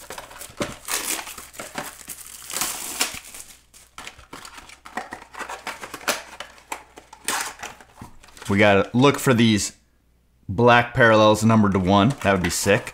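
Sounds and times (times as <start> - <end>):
plastic shrink wrap tearing: 0.0 - 5.1.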